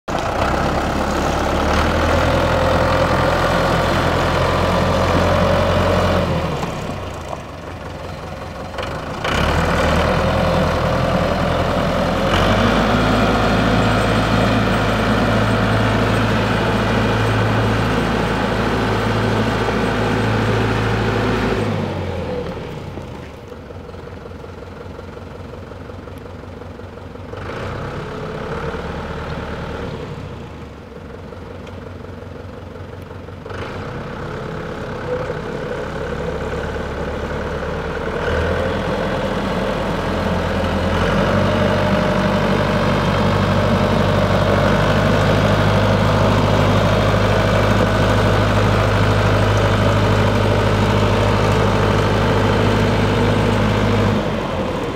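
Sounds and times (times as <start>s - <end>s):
tractor diesel engine running: 0.0s - 54.9s.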